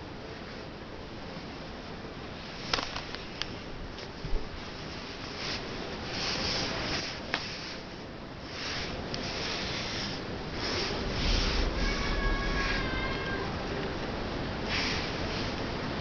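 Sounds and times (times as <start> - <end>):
rustling and handling noise: 1.3 - 16.0
cat meowing: 11.6 - 13.8.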